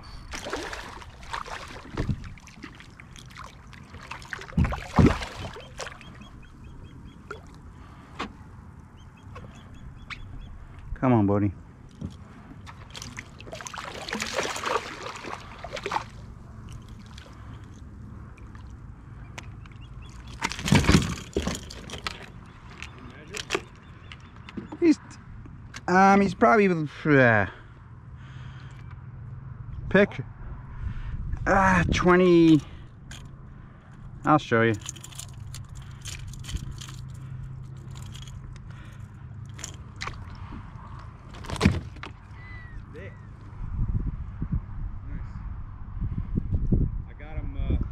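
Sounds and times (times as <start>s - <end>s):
water splashing and sloshing: 0.0s - 10.8s, 11.7s - 24.6s, 34.7s - 42.8s
knocks and scrapes in a kayak: 1.9s - 2.8s, 20.2s - 23.9s.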